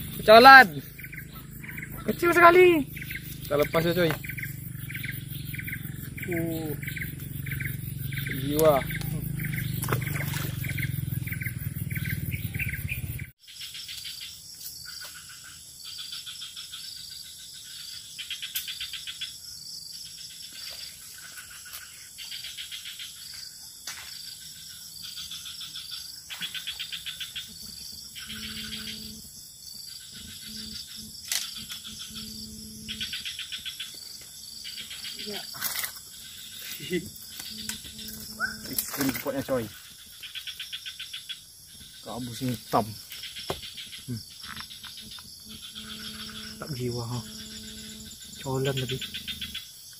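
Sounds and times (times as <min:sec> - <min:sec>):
insects trilling: 0:00.0 - 0:49.9
low hum: 0:37.3 - 0:39.2, 0:45.0 - 0:49.6.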